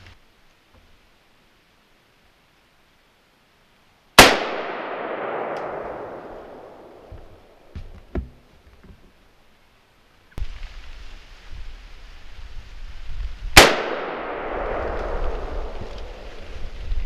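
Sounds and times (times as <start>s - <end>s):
rifle shot with echo: 4.2s - 7.6s, 13.6s - 15.7s.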